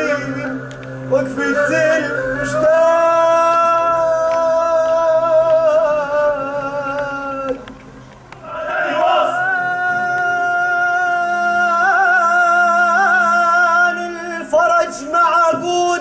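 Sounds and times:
man singing: 0.0s - 7.7s, 8.4s - 16.0s.

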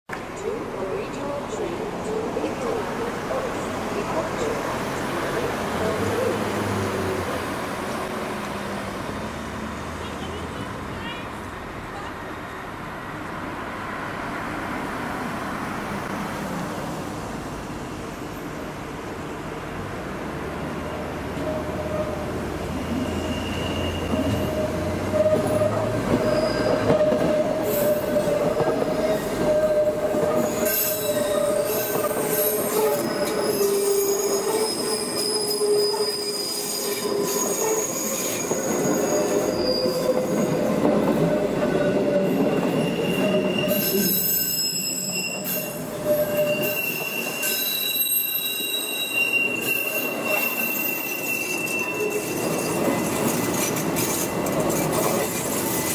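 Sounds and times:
train wheels squealing: 22.0s - 55.9s
rumble of train running gear: 51.8s - 55.9s.

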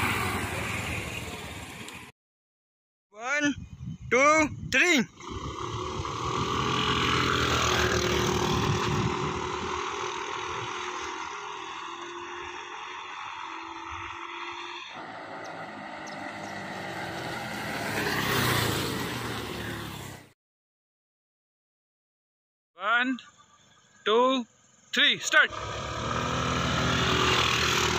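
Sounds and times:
scooters accelerating hard: 5.1s - 20.4s, 25.5s - 27.9s
scooter riding past: 5.2s - 20.2s, 25.5s - 27.9s.

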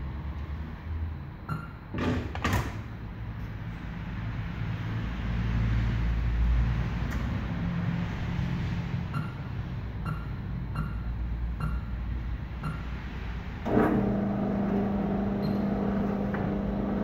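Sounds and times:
wheel balancer mechanical rumble: 6.6s - 17.0s.

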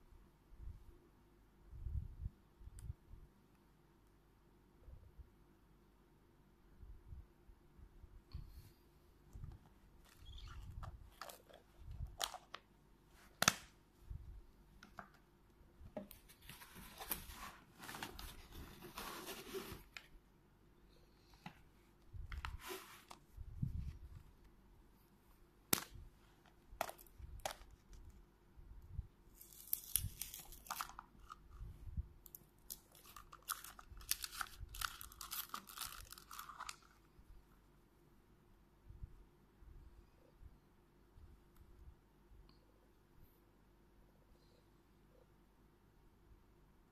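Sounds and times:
plastic wrapper crinkling: 10.0s - 12.6s, 29.4s - 31.6s, 32.2s - 37.0s.

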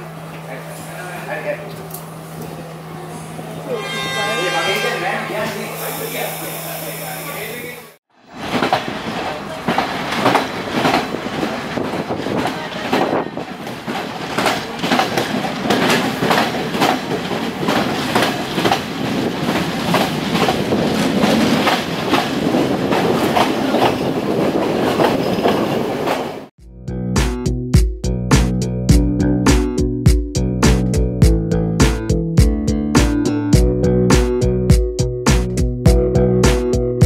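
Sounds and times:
train wheels clicking over rail joints: 8.3s - 26.5s
instrumental music with steady beat: 26.6s - 37.0s.

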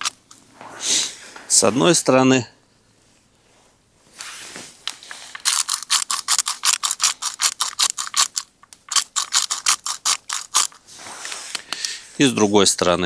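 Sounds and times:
spice grinder ratcheting clicks: 5.4s - 10.8s.

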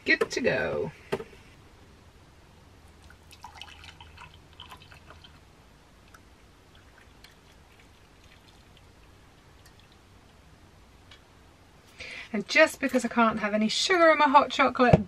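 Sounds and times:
liquid trickling into a mug: 3.0s - 5.4s, 6.0s - 10.1s.

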